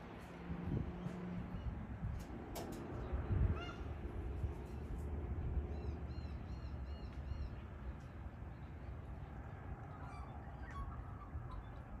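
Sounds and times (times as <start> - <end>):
birds chirping: 4.6 - 12.0.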